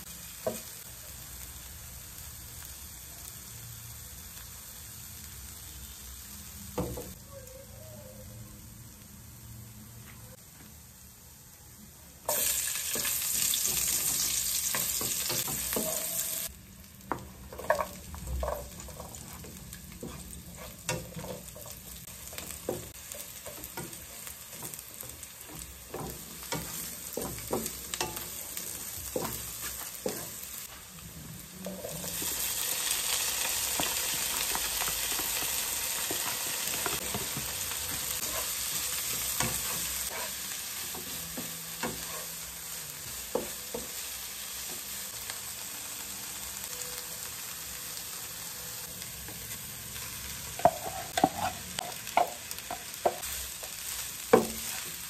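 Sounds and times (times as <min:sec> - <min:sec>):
food sizzling in hot oil: 0:00.0 - 0:09.9, 0:12.1 - 0:55.0
spatula scraping a pan: 0:17.5 - 0:30.5, 0:36.0 - 0:42.4, 0:50.6 - 0:53.2.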